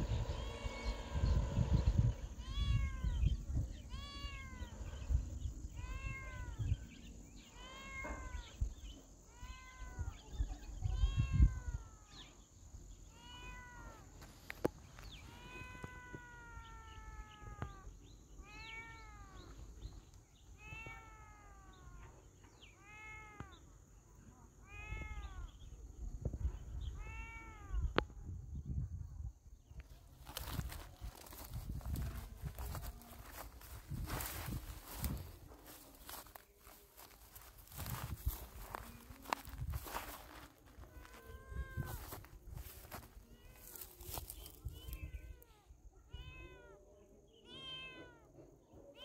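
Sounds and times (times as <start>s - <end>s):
cat meowing: 0.1s - 1.5s, 2.3s - 5.1s, 5.7s - 6.9s, 7.5s - 12.3s, 13.1s - 14.2s, 15.2s - 19.6s, 20.6s - 22.2s, 22.8s - 23.6s, 24.6s - 25.6s, 26.9s - 28.0s, 37.6s - 49.0s.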